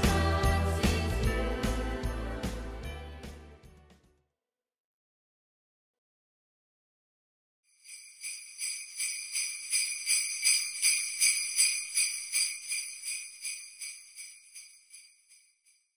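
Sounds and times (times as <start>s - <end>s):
sleigh bells shaken: 0.0s - 2.9s, 7.7s - 15.8s.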